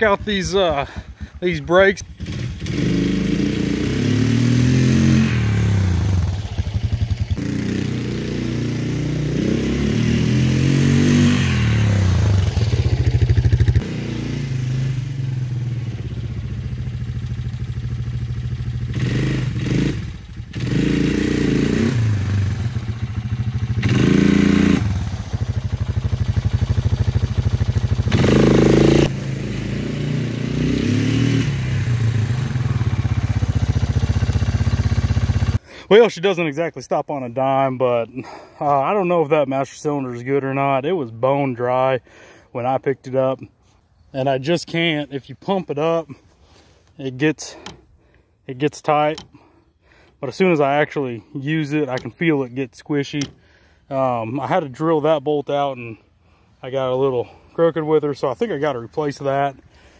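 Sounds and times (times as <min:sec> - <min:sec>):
quad engine revving: 0:00.0 - 0:35.6.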